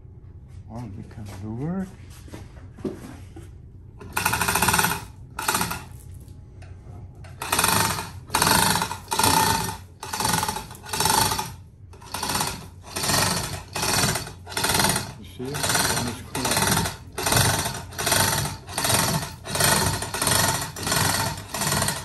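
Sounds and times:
chain rattling through hoist: 4.0s - 6.0s, 7.4s - 22.0s.

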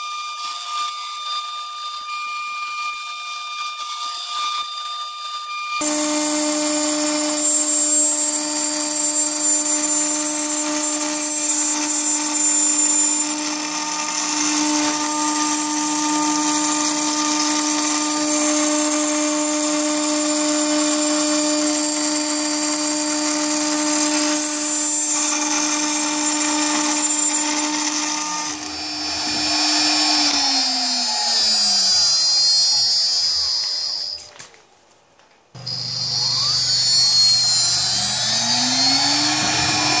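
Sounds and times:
router spindle whine: 0.0s - 34.3s, 35.6s - 40.0s
metal cutting hiss: 24.1s - 34.3s, 35.6s - 40.0s.

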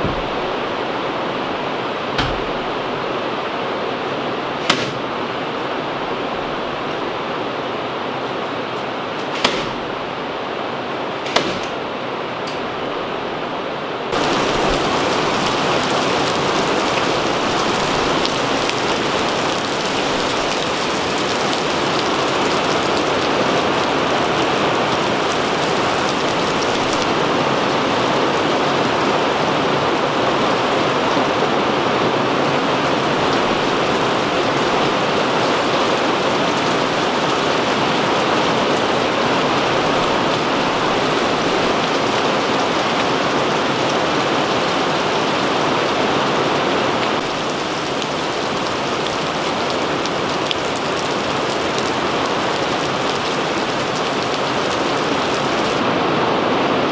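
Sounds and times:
steady rain: 0.0s - 56.9s
nail gun firing: 4.6s - 5.0s, 9.2s - 9.9s, 11.2s - 11.8s.

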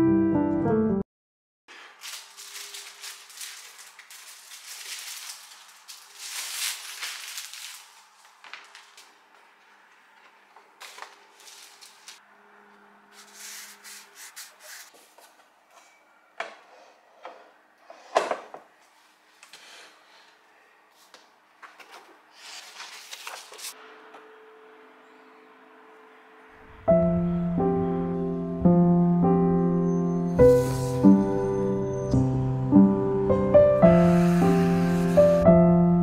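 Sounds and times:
pencil scratching on paper: 13.2s - 15.0s.

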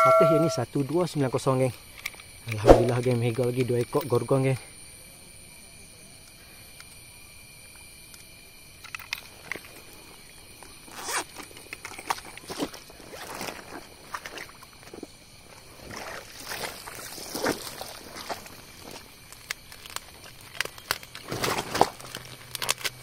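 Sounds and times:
faint steady high tones: 0.0s - 1.1s
gear clicks and rustles: 8.2s - 23.0s.

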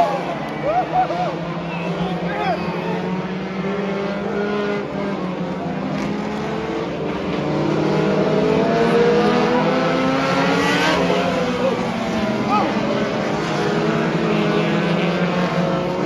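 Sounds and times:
race car engines: 0.0s - 16.0s.

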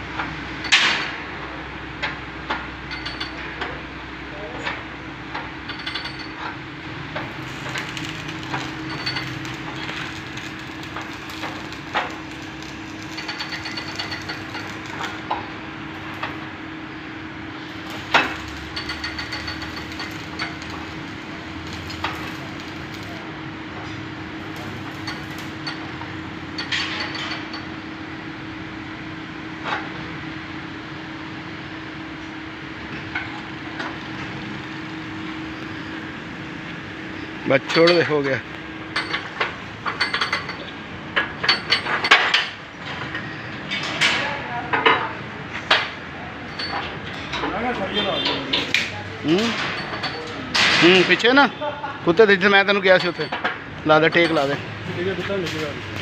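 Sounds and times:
steady hum: 5.1s - 26.7s.

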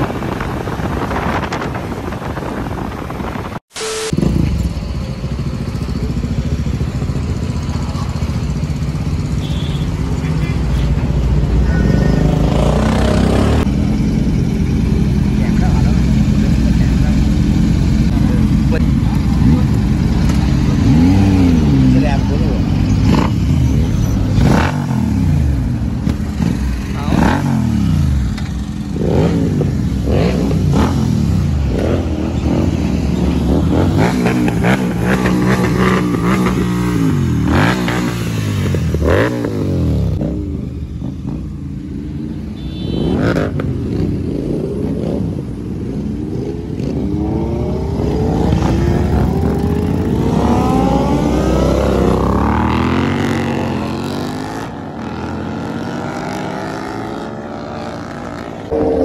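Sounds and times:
motorcycle engines revving: 0.0s - 59.0s
people talking: 10.1s - 12.4s, 15.2s - 17.4s, 18.1s - 20.6s, 21.7s - 22.7s, 26.9s - 27.4s.

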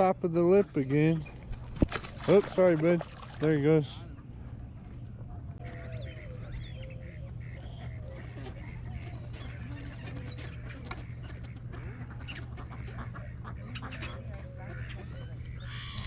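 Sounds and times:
ducks and birds calling: 0.0s - 16.0s
low background rumble: 0.0s - 16.0s.

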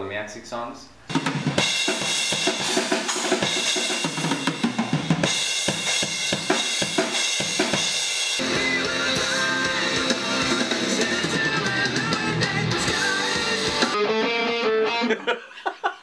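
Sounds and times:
full-band music: 1.1s - 15.0s
rock drum kit: 1.1s - 15.0s.

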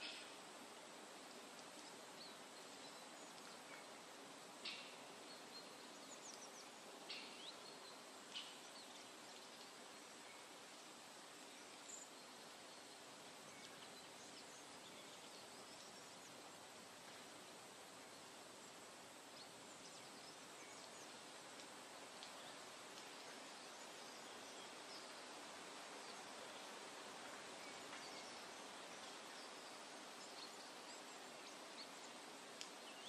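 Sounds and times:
thin whistled bird calls: 4.6s - 9.1s.

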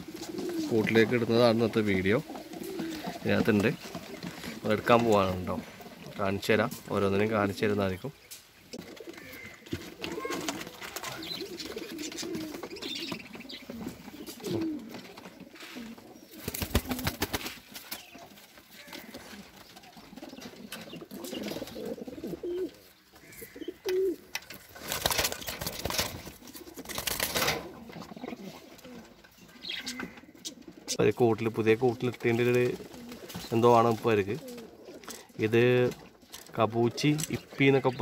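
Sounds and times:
pigeons cooing: 0.0s - 38.0s
wings flapping: 2.3s - 5.1s, 8.8s - 22.5s, 24.1s - 29.0s, 32.4s - 35.1s.

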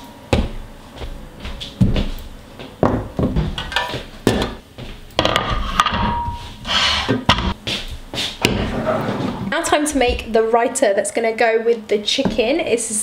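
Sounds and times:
kitchen items knocking on wood: 2.8s - 4.6s.

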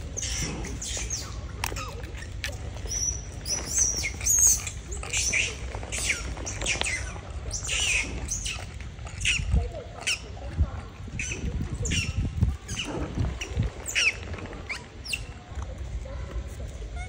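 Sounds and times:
animal chirping: 0.0s - 10.4s, 11.1s - 15.4s.

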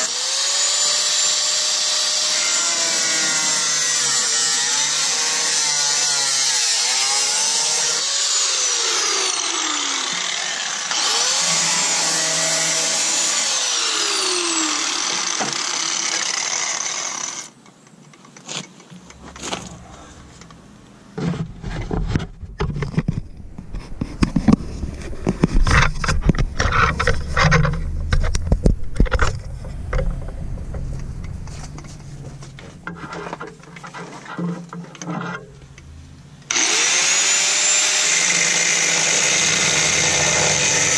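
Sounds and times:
angle grinder cutting steel: 0.0s - 17.5s, 36.5s - 40.9s
knocks and clatter of handling: 21.2s - 31.1s.

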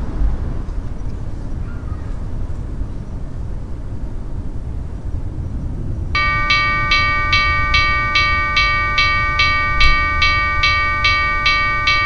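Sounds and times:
low steady rumble: 2.5s - 12.0s
railroad crossing warning bell: 6.2s - 12.0s.

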